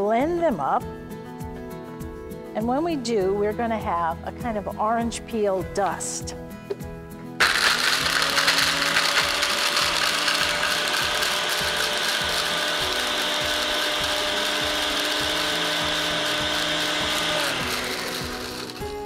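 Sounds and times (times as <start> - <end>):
blender grinding: 7.4 - 19.0.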